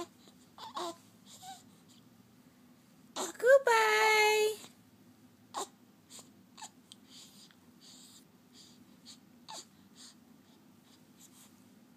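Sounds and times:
baby grunting and cooing: 0.0s - 1.6s, 3.1s - 3.4s, 5.5s - 5.8s
baby breathing: 6.1s - 11.6s.

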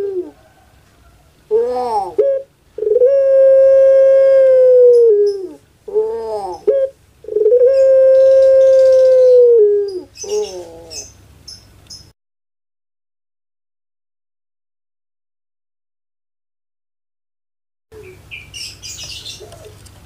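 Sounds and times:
dove calling: 0.0s - 12.1s, 18.0s - 19.9s.

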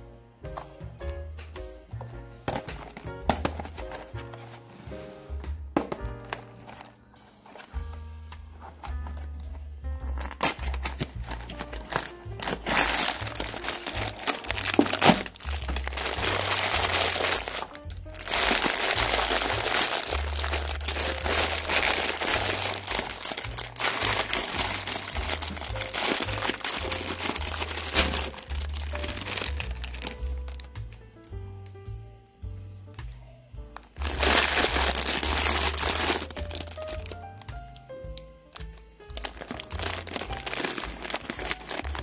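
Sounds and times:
background music with bass line: 0.0s - 42.0s
plastic packaging crinkling: 2.5s - 4.6s, 6.2s - 7.8s, 10.1s - 30.8s, 33.8s - 42.0s.

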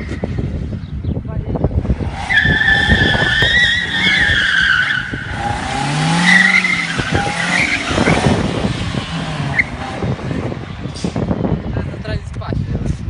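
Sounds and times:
car engine running hard: 1.5s - 13.0s
tyres squealing: 2.1s - 8.5s.

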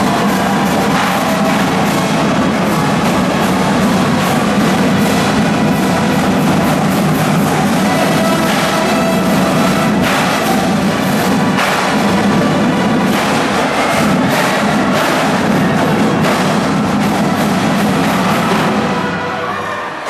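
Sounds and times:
brass horns: 0.0s - 20.0s
drumline playing: 0.0s - 20.0s.

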